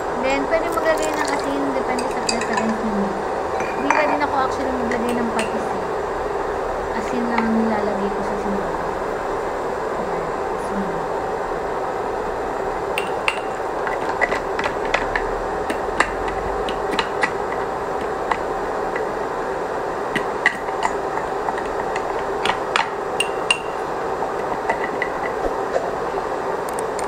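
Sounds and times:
broth boiling with pops: 0:00.0 - 0:03.0, 0:12.4 - 0:27.0.

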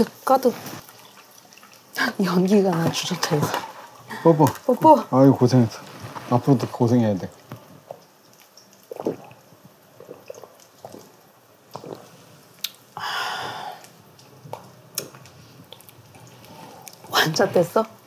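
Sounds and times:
quiet sipping: 0:07.4 - 0:17.7
breathy exhale: 0:13.0 - 0:13.9.

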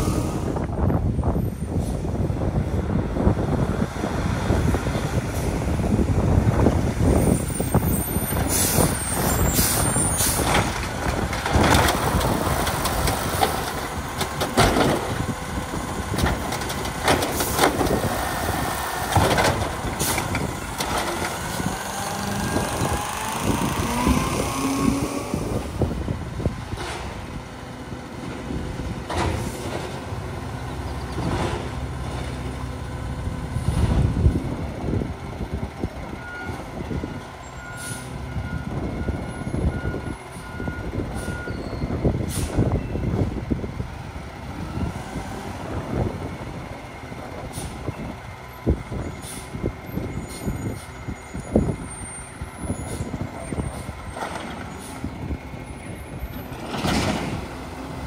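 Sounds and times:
garbage truck diesel engine: 0:00.0 - 0:58.0
air brake hisses: 0:42.3 - 0:42.6, 0:49.2 - 0:49.6.

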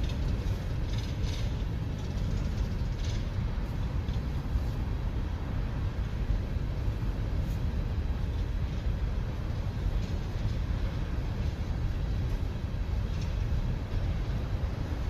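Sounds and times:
train rumbling past: 0:00.0 - 0:15.0.

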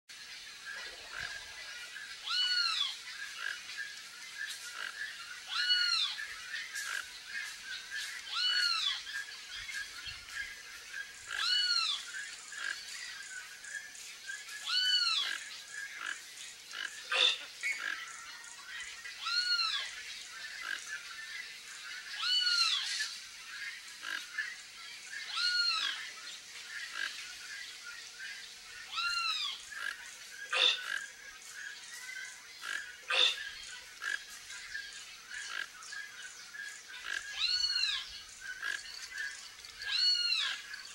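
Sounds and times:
toucan calling: 0:02.2 - 0:03.6, 0:04.8 - 0:07.1, 0:14.6 - 0:18.0, 0:28.9 - 0:31.1, 0:32.6 - 0:34.2, 0:37.0 - 0:40.9.

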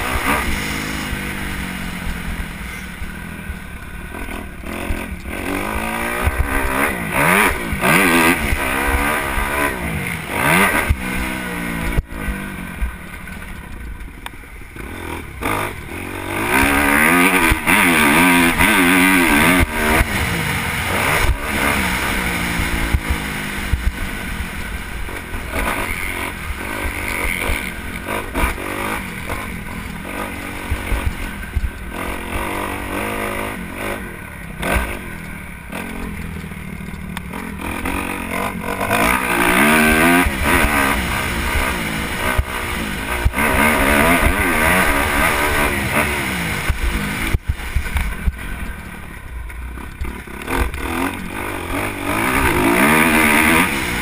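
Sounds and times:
dirt bike engine revving: 0:00.0 - 0:13.8, 0:14.6 - 0:54.0.

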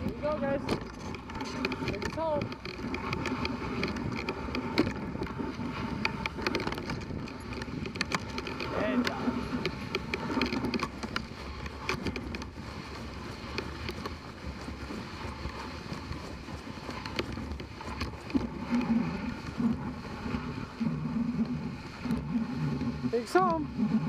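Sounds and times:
sled runners hissing on snow: 0:08.6 - 0:24.0.

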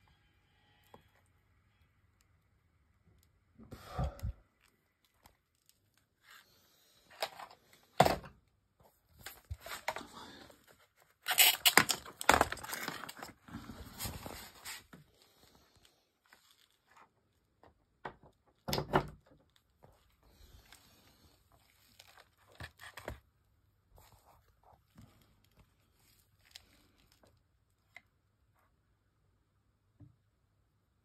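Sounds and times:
rustling and scraping: 0:08.8 - 0:17.2.

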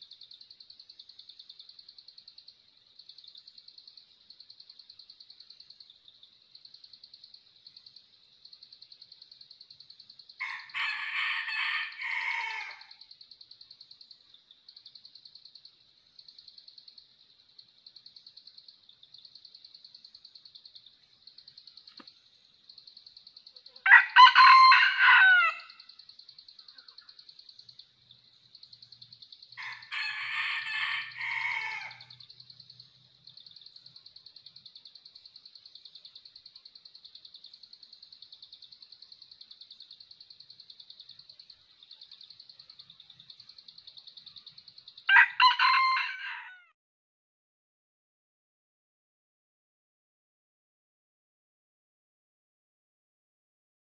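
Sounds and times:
rooster crowing: 0:10.4 - 0:12.9, 0:23.8 - 0:25.8, 0:29.6 - 0:32.2, 0:45.1 - 0:46.7.

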